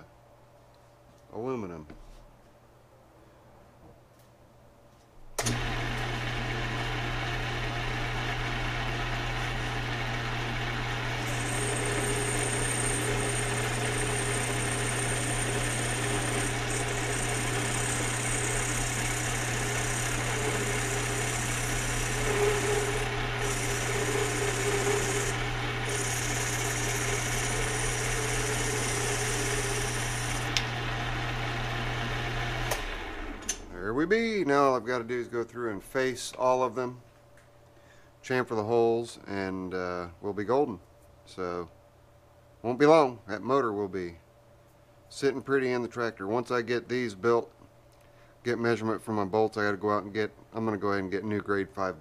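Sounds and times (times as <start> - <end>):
lathe motor hum: 5.4 - 33.8
high thin cutting whine: 11.1 - 30.7.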